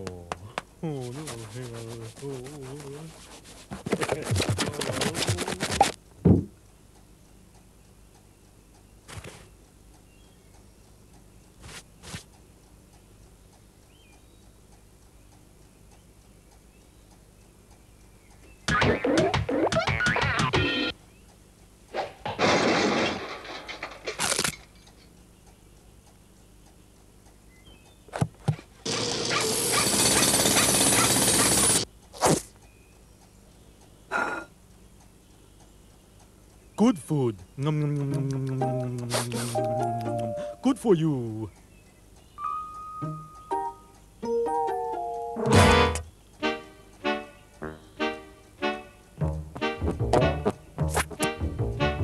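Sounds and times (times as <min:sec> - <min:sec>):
cartoon rasping rip: 0:03.6 - 0:06.0, 0:24.1 - 0:24.6, 0:29.0 - 0:32.5, 0:39.0 - 0:39.6
faint clock ticking: 0:05.9 - 0:18.8, 0:20.9 - 0:22.0, 0:24.8 - 0:28.9, 0:29.8 - 0:51.8.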